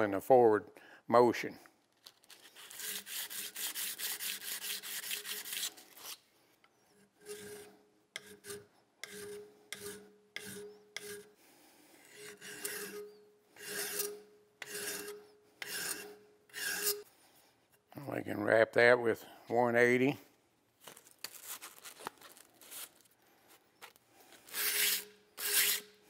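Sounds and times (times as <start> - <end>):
file strokes on steel: 2.4 - 6.2, 6.8 - 17.2, 24.4 - 26.0
sanding strokes on steel: 2.4 - 6.2, 7.1 - 11.4, 12.0 - 17.1, 24.5 - 26.0.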